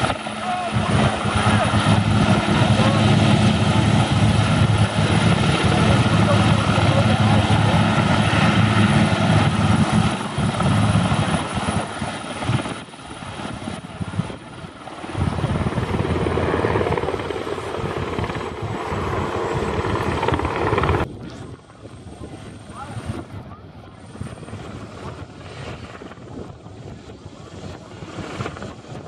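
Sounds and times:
helicopter rotor and turbine: 0.0s - 29.0s.

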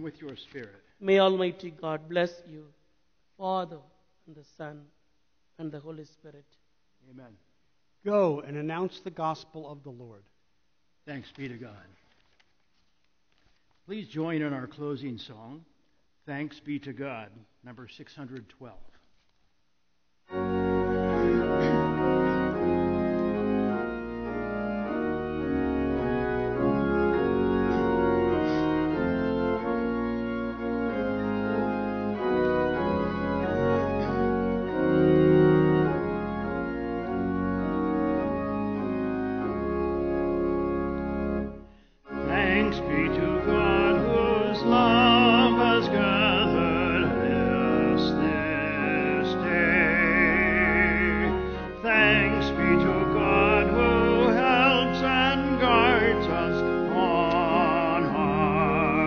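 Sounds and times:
church organ chords: 20.2s - 59.0s
person singing with vibrato: 42.1s - 59.0s.

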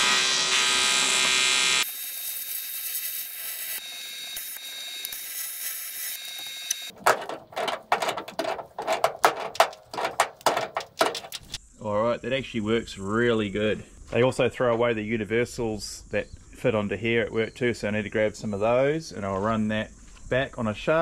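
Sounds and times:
welding arc hissing and crackling: 0.4s - 6.9s
metallic clicks and clunks: 6.9s - 11.6s.

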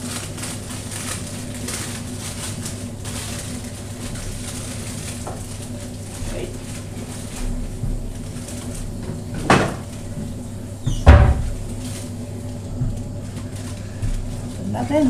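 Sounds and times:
steady low hum: 0.0s - 15.0s
cupboard door shutting: 9.4s - 9.9s, 10.8s - 11.7s.

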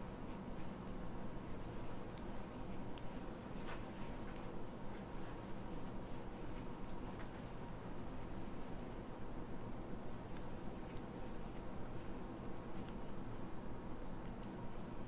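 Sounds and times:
low room hum: 0.0s - 15.0s
crochet hook scratching yarn: 1.6s - 4.4s.

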